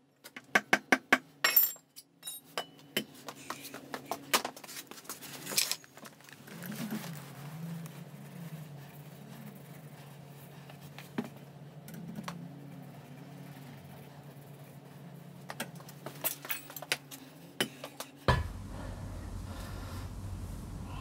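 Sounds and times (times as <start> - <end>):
low steady hum: 18.2 - 21.0
loud knock: 18.3 - 19.0
low rumble: 18.3 - 21.0.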